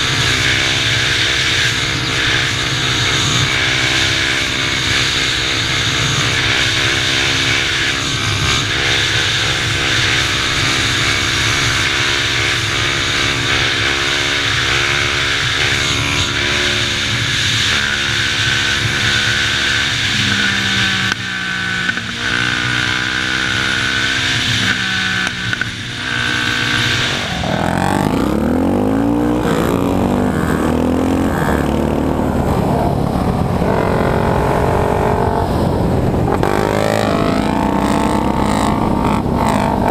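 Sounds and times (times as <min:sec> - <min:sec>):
quad engines running hard: 0:00.0 - 0:39.9
wind rushing over microphone: 0:25.4 - 0:39.9.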